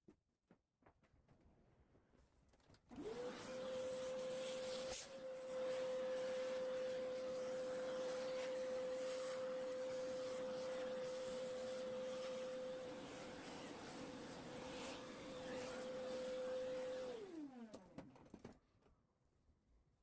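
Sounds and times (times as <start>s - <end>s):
handheld vacuum cleaner whine: 2.9s - 18.0s.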